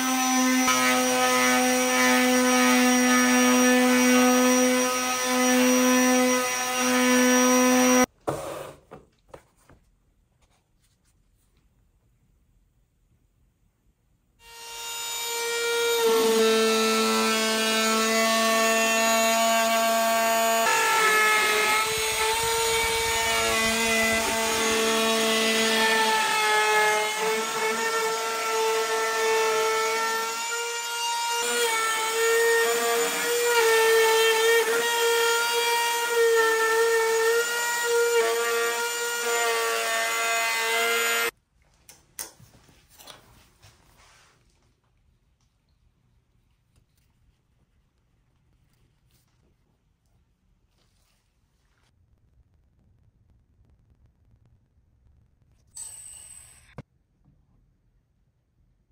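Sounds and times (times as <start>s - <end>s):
router whining trimming edge: 14.4s - 41.3s, 55.7s - 56.8s.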